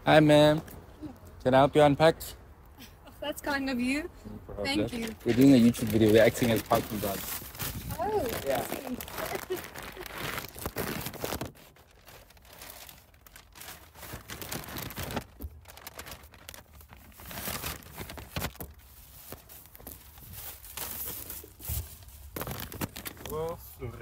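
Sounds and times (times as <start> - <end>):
rustling and crinkling: 4.7 - 24.0.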